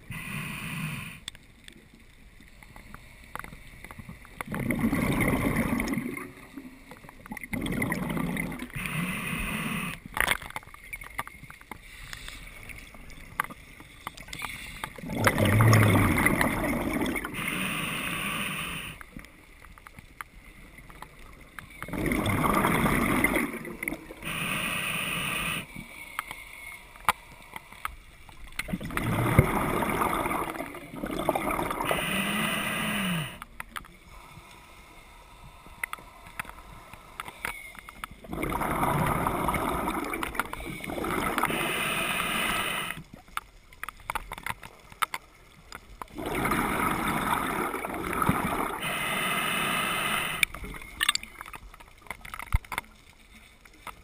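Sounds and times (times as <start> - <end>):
regulator breath hiss: 0.0 - 1.2, 8.8 - 10.0, 17.3 - 19.0, 24.2 - 25.8, 31.8 - 33.5, 41.5 - 43.0, 48.8 - 50.5
bubbling exhaust underwater: 4.4 - 10.0, 14.9 - 19.2, 21.9 - 25.7, 28.6 - 33.5, 38.2 - 43.1, 46.1 - 51.3.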